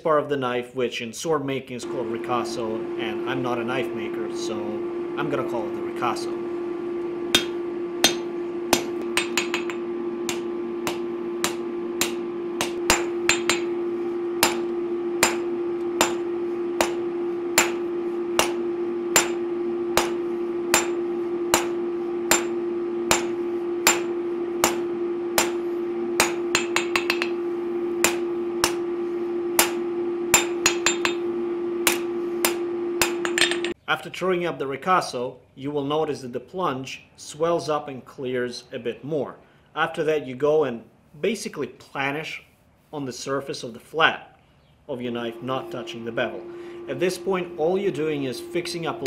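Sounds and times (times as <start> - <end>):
steady hum: 1.8 - 33.8, 45.0 - 49.0
hammer striking hot metal on anvil: 7.3 - 33.8.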